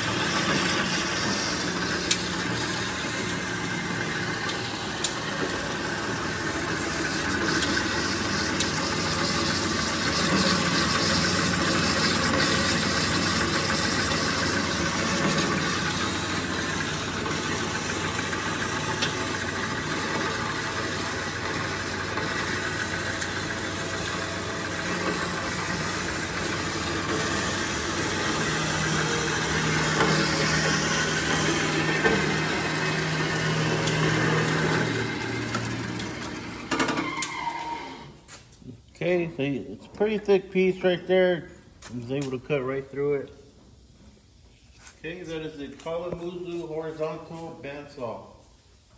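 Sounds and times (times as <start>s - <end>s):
bandsaw cutting metal: 0.0s - 38.0s.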